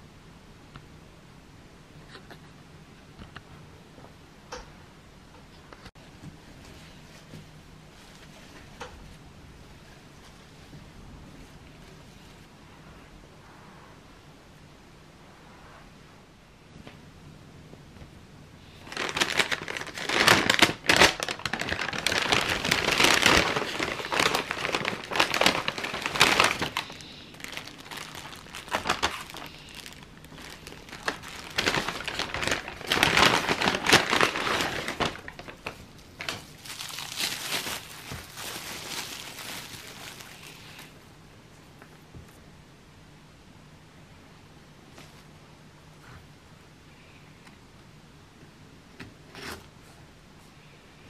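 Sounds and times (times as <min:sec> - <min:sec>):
cellophane wrappers crinkling: 0:18.7 - 0:41.0
paper bag rustling: 0:18.7 - 0:41.0.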